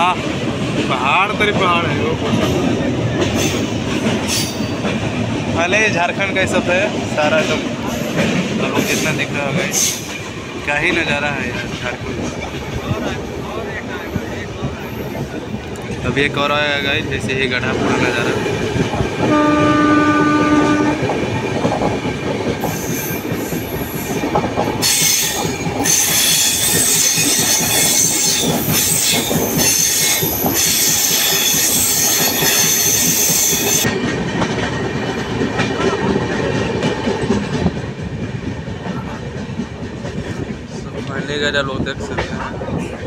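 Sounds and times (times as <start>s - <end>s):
train rumble and rail clatter: 0.0s - 43.0s
train horn: 19.2s - 21.1s
hissing wheel squeal: 24.8s - 33.8s.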